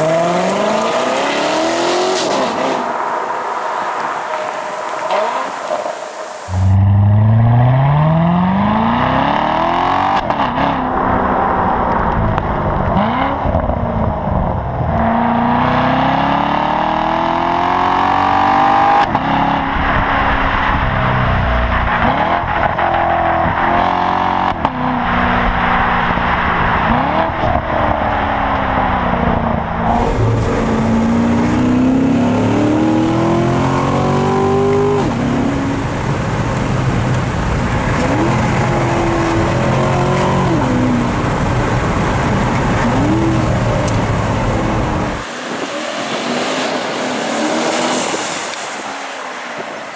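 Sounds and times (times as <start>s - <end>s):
car engine accelerating through gears: 0.0s - 2.9s, 6.5s - 19.6s, 26.8s - 45.3s.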